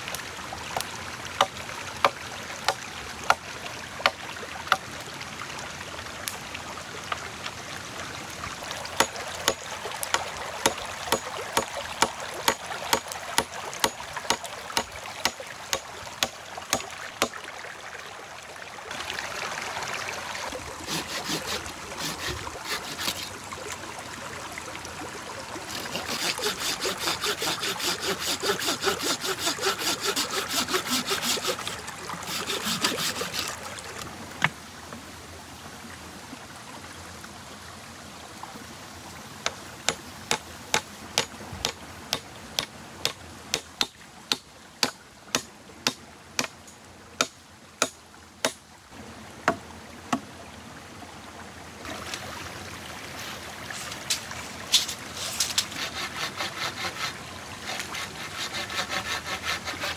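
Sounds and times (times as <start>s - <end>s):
hand saw strokes on wood: 9.0s - 13.1s, 20.8s - 23.3s, 25.7s - 33.6s, 40.3s - 46.5s, 53.2s - 59.9s.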